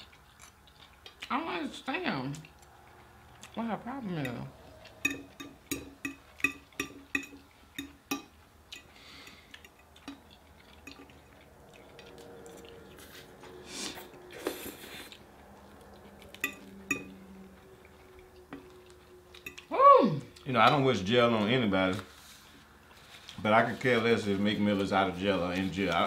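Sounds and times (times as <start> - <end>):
utensils clinking on dishes: 4.8 - 11.2, 16.0 - 18.0.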